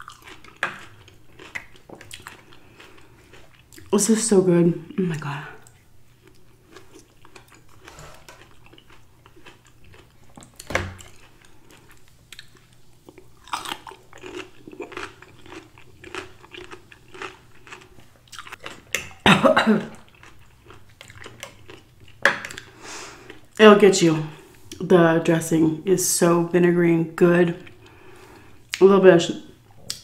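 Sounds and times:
chewing and crunchy biting: 0:00.0 - 0:03.9, 0:05.6 - 0:19.2, 0:19.9 - 0:23.5.

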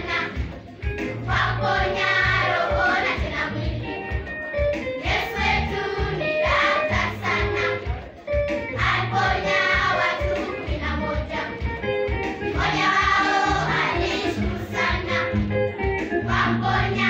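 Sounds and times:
children's choir singing: 0:00.0 - 0:00.5, 0:01.2 - 0:03.8, 0:05.0 - 0:08.0, 0:08.8 - 0:11.6, 0:12.5 - 0:15.4, 0:16.2 - 0:17.0.

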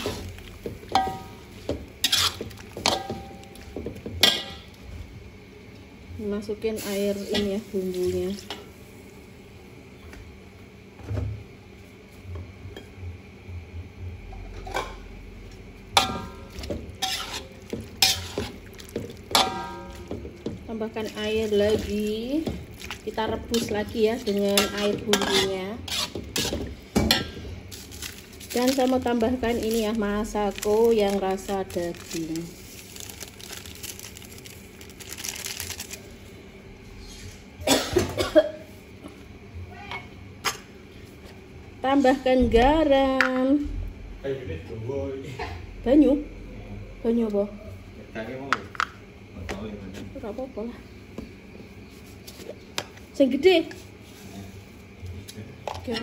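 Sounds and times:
metal spatula scraping a wok: 0:02.0 - 0:03.0, 0:17.0 - 0:18.5, 0:23.5 - 0:26.6
plastic sachet crinkling: 0:27.7 - 0:36.1.

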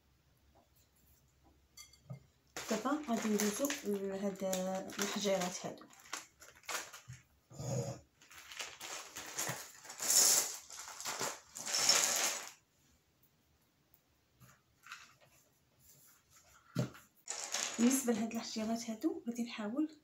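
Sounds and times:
stones rattling on a countertop: 0:02.6 - 0:07.2, 0:08.2 - 0:12.6, 0:16.8 - 0:18.5.

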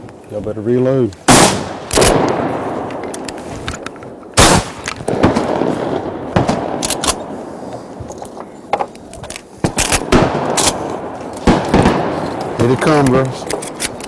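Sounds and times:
shotgun blasts with rolling echo: 0:01.2 - 0:03.4, 0:04.1 - 0:07.6, 0:09.6 - 0:13.6.

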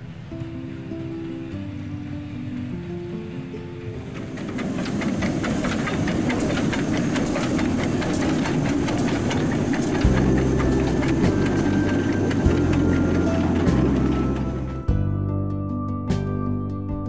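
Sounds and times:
steam hissing: 0:00.0 - 0:14.8
steam locomotive passing: 0:00.0 - 0:14.9
sharp exhaust beats: 0:04.1 - 0:15.0.

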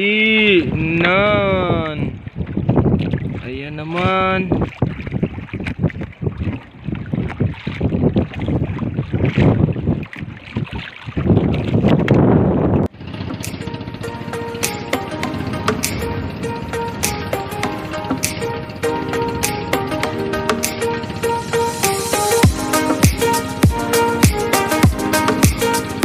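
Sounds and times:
wind buffeting microphone: 0:00.3 - 0:20.0
water slapping against boat hull: 0:00.6 - 0:13.6
electronic music: 0:13.4 - 0:26.0.

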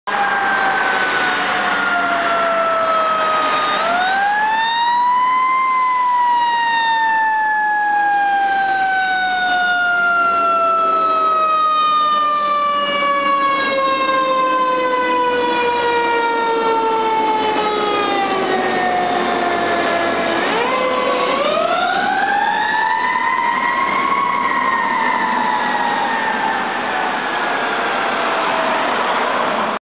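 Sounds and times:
fire engine siren wailing: 0:00.1 - 0:29.8.

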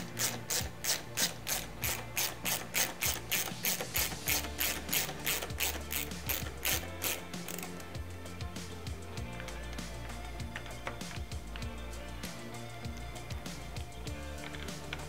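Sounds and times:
ratchet wrench clicking: 0:00.0 - 0:08.0.

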